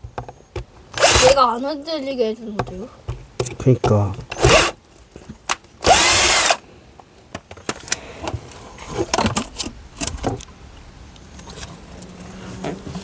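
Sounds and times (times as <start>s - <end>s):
cordless drill motor running: 1.0s - 1.4s, 4.4s - 4.8s, 5.8s - 6.6s.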